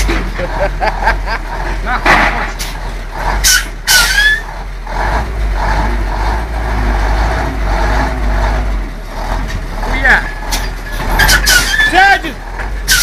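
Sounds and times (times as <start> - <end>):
truck diesel engine under load: 0.0 - 13.0.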